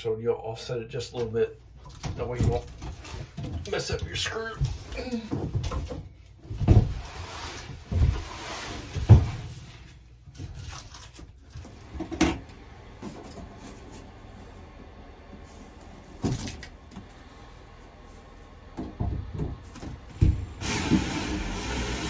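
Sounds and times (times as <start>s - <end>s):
ceiling panel knocks and bumps: 18.7s - 20.4s.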